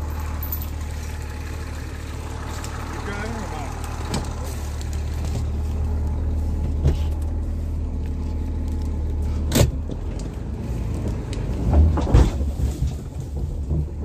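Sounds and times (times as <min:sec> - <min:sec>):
car engine running: 0:00.0 - 0:14.0.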